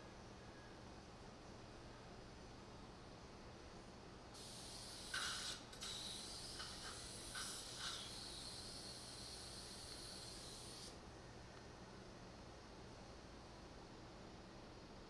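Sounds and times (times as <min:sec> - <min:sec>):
suction tip hissing: 0:04.4 - 0:11.0.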